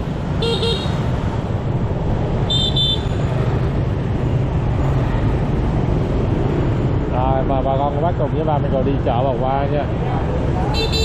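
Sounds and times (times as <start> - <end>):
traffic rumble: 0.0 - 11.0
vehicle horn honking: 0.4 - 1.0, 2.5 - 3.2, 10.8 - 11.0.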